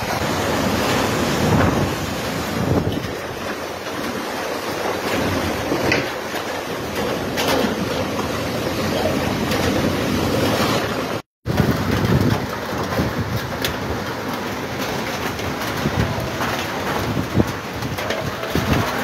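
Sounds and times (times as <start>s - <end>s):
wind buffeting microphone: 0.0s - 4.4s, 8.2s - 19.0s
heavy wind and rain: 0.0s - 19.0s.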